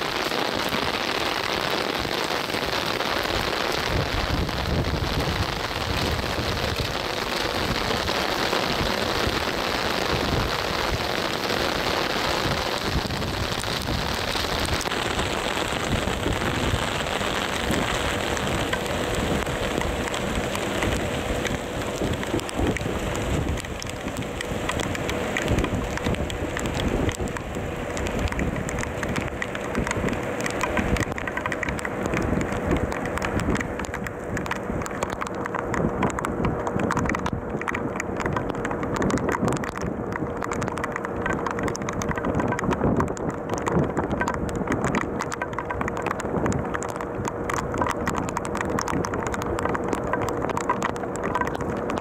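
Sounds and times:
rain hissing on microphone: 0.0s - 52.0s.

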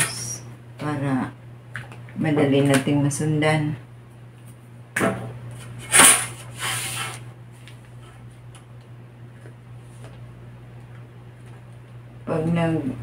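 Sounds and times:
ruler sliding on paper: 5.9s - 7.2s.

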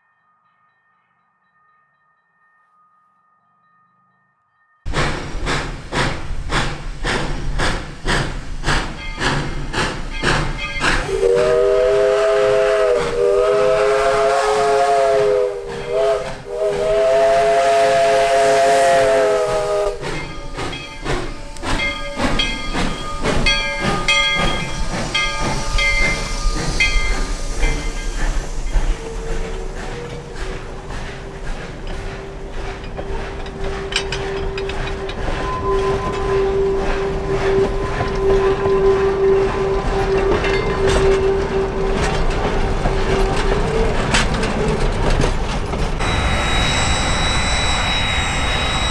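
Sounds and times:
steam hissing: 4.9s - 45.0s, 45.9s - 48.9s
steam locomotive exhaust chuffs: 4.9s - 48.9s
train wheels clicking: 4.9s - 48.9s
steam whistle blasts: 11.0s - 20.0s, 33.6s - 42.4s, 46.0s - 48.9s
wheels squealing: 18.9s - 48.9s.

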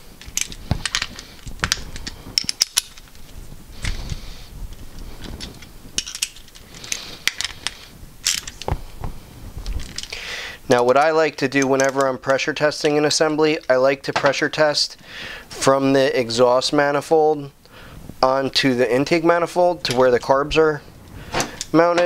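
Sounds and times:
metal part clicking and clinking: 0.2s - 3.1s, 5.4s - 8.7s.

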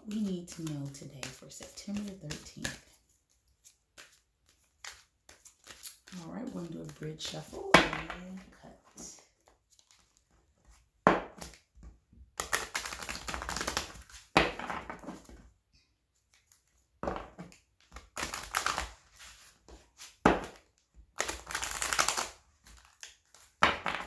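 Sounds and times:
cards being riffle shuffled: 0.0s - 7.6s, 9.2s - 10.8s, 12.4s - 14.4s, 16.2s - 24.0s.

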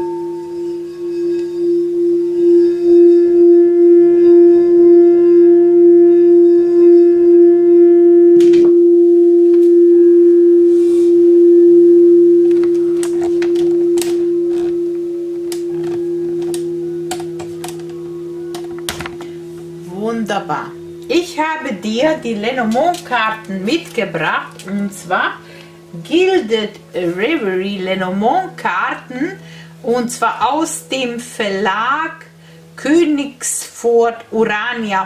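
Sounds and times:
singing bowl tone: 0.0s - 35.0s.

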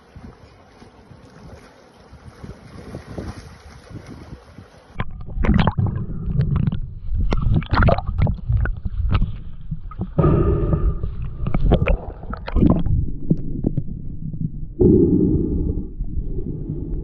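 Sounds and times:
muffled underwater rumbling: 0.0s - 17.0s
wind on microphone: 0.0s - 17.0s
underwater bubbling pops: 4.9s - 15.1s.

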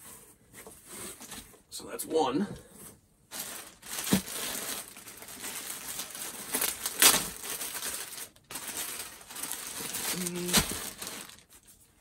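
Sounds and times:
plastic bag crinkling: 3.3s - 11.8s.

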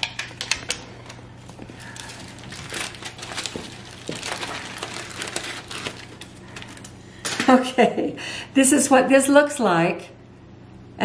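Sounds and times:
aluminium foil crinkling: 0.4s - 7.0s.

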